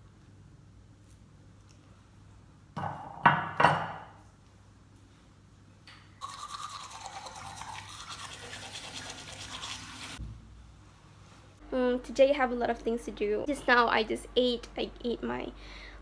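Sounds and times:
toothbrush scrubbing teeth: 6.2s - 10.2s.

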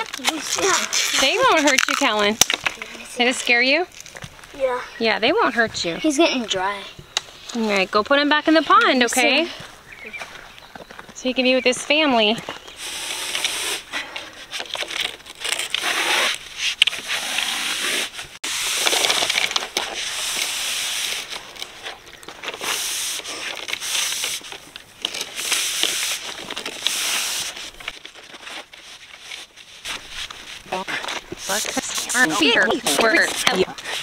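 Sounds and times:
plastic pipe rubbing and scraping: 0.0s - 4.4s, 12.2s - 34.0s.

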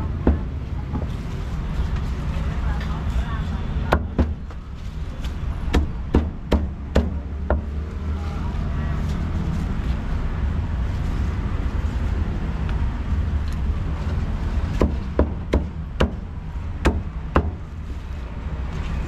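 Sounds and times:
low background rumble: 0.0s - 19.0s
cleaver chopping meat on wood: 5.7s - 7.7s.

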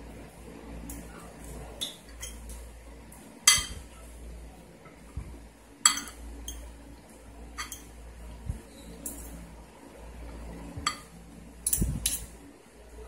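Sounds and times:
tableware clinking on plates: 3.5s - 3.8s, 5.9s - 6.6s, 7.6s - 7.9s, 10.9s - 11.1s.

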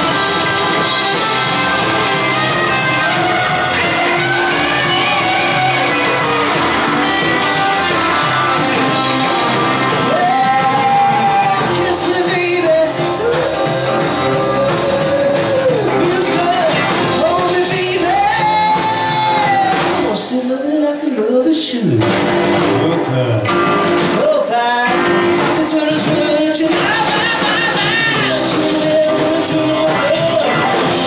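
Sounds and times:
singer holding long notes: 0.0s - 20.0s
rock band playing: 0.0s - 31.0s.

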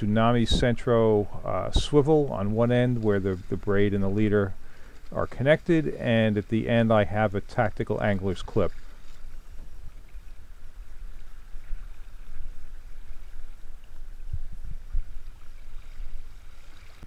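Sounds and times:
low thumps: 0.0s - 4.1s
wind rumbling on microphone: 0.0s - 17.0s.

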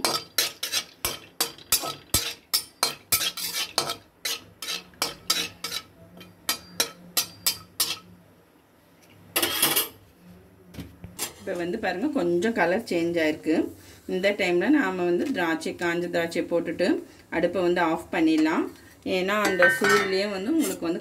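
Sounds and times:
metal spatula scraping a pan: 0.0s - 8.1s, 9.4s - 10.0s, 19.4s - 21.0s.

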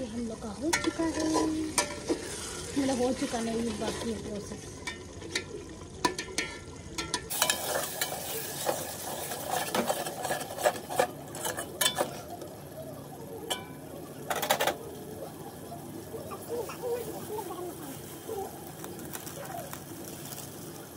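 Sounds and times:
faint sizzling: 0.0s - 20.9s
metal spoon scraping a pot: 0.7s - 4.1s, 6.1s - 12.4s.

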